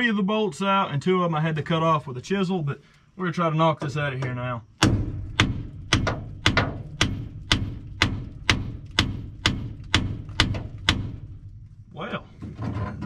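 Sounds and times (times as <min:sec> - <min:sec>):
hammer striking cast iron: 0:04.2 - 0:11.7.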